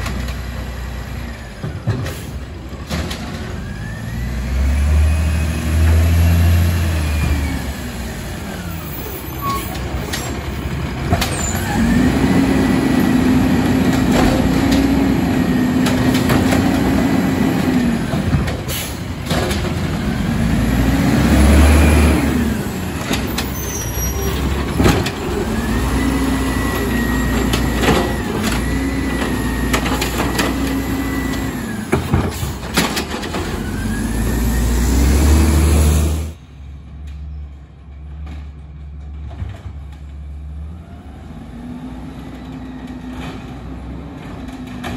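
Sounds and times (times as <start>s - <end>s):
garbage truck engine revving: 0.0s - 36.4s
distant truck running: 0.0s - 44.9s
clanks of lift arm and carts: 1.5s - 4.0s, 8.7s - 12.1s, 13.3s - 20.1s, 22.4s - 34.4s, 36.9s - 40.5s, 42.3s - 44.9s.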